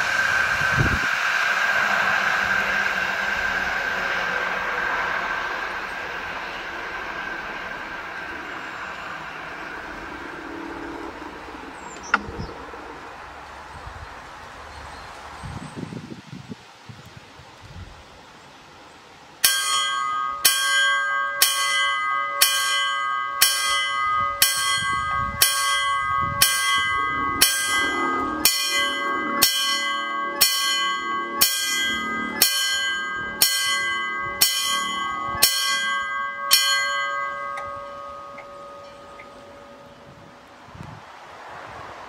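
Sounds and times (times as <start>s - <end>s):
level crossing warning bell: 1.2s - 12.2s, 19.4s - 40.7s.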